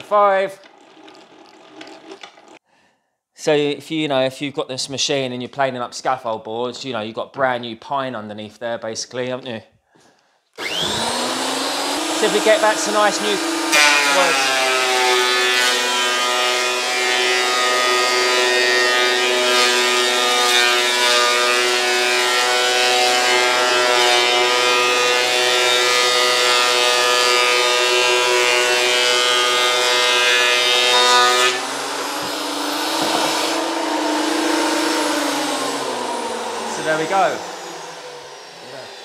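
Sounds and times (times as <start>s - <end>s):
cutter block planing wood: 10.6s - 39.0s
planer motor whine: 10.6s - 39.0s.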